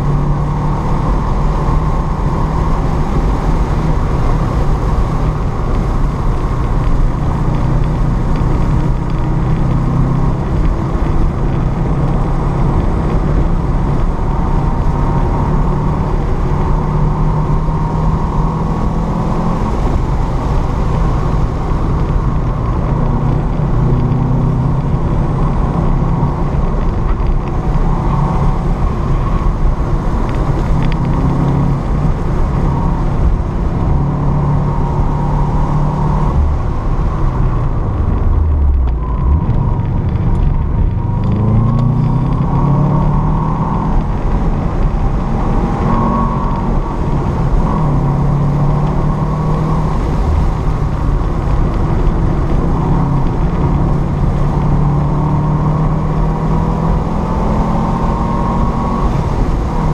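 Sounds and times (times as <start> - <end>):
road and wind noise: 0.0 - 59.9
car engine revving from inside cabin: 30.1 - 59.9.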